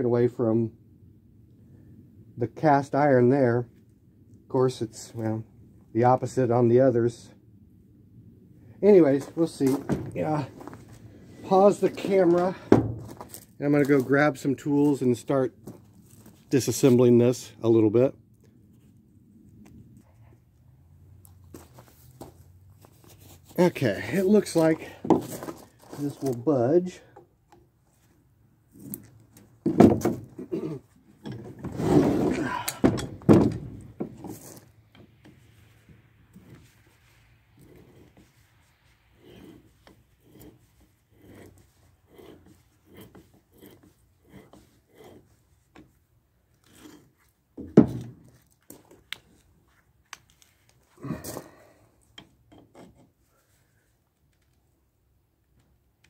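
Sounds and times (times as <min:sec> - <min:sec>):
rough scraping on metal: 0:30.3 - 0:32.7, 0:35.6 - 0:47.4.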